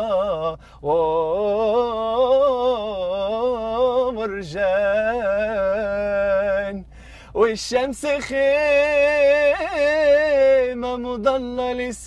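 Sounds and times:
man singing unaccompanied: 0.0 - 12.0
singer breathing in: 0.6 - 0.8, 6.9 - 7.4.

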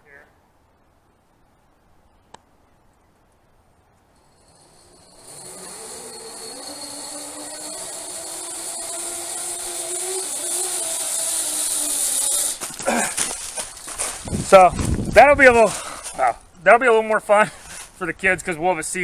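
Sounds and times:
zipline pulley whirring on cable: 4.2 - 12.8.

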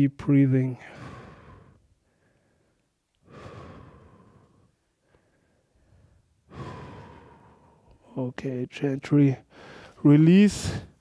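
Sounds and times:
person breathing deeply: 0.7 - 8.1, 9.4 - 10.0, 10.6 - 11.0.

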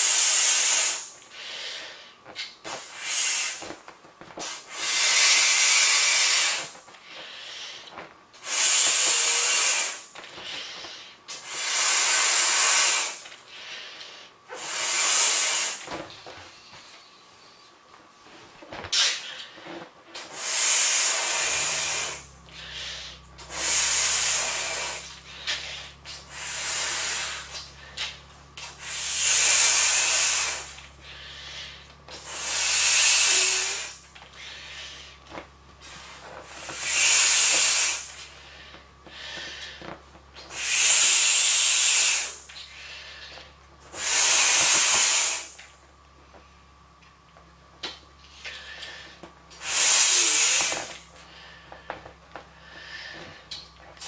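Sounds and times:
person blowing up a beach ball: 0.0 - 1.1, 1.7 - 6.9, 7.9 - 13.3, 14.5 - 16.6, 18.7 - 45.6, 47.8 - 51.9.

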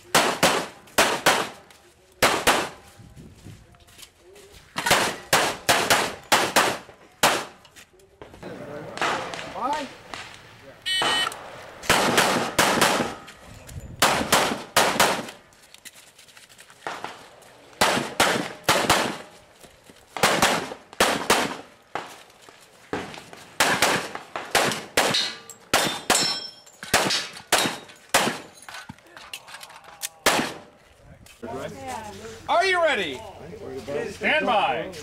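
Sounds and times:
pistol shots: 0.0 - 1.6, 2.2 - 2.8, 4.8 - 7.6, 11.0 - 13.3, 14.0 - 15.4, 17.8 - 19.3, 20.2 - 22.1, 22.9 - 28.6, 30.2 - 30.7.

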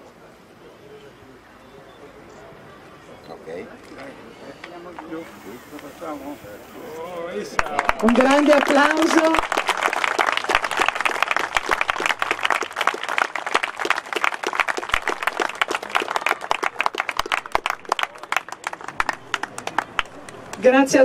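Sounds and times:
small crowd applauding: 7.5 - 20.7.

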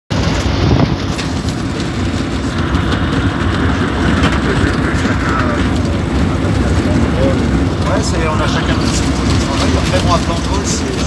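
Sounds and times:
propeller aircraft engine running: 0.1 - 11.0.

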